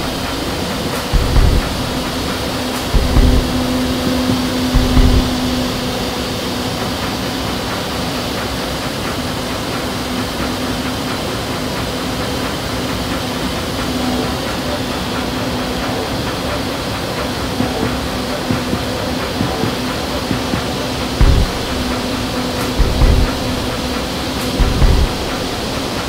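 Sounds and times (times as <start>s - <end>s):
steady hum: 0.0s - 26.0s
wind tunnel air rushing: 0.0s - 26.0s
short low thumps: 1.1s - 2.3s, 2.9s - 3.9s, 4.7s - 5.8s, 21.2s - 24.0s, 24.6s - 25.8s.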